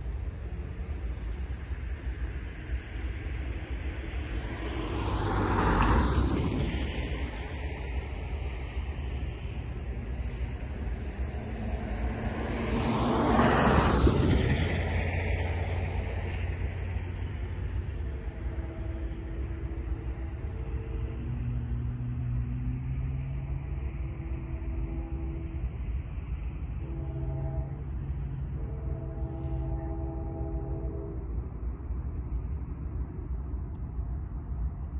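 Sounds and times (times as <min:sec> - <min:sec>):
low rumble: 0:00.0 - 0:34.9
vehicle passing: 0:03.9 - 0:33.4
distant train horn blasts: 0:09.8 - 0:32.2.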